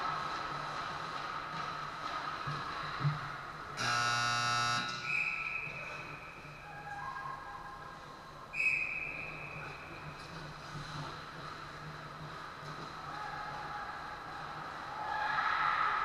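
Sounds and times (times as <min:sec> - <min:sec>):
scoreboard buzzer blast: 0:03.8 - 0:05.0
shrill referee's whistle: 0:04.9 - 0:06.3, 0:08.5 - 0:09.8.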